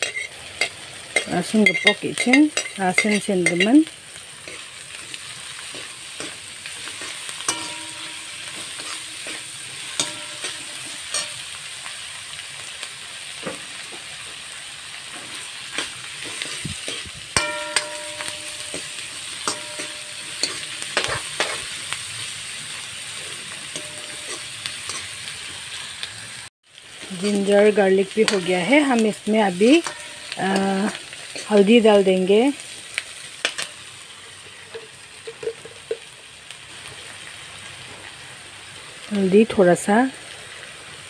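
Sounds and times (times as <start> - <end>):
metal spoon scraping wok: 0.0 - 11.9, 15.1 - 26.0, 27.0 - 32.7, 33.4 - 36.1
vegetables sizzling in hot oil: 0.0 - 41.0
spoon knocking against wok: 7.4 - 8.7, 10.0 - 11.4, 17.4 - 21.6.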